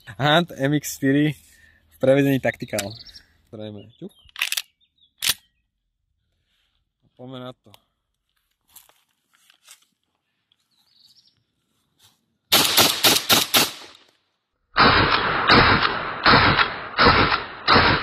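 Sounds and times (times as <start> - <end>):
shotgun firing rapid shots: 12.5 - 14.0, 14.8 - 18.0.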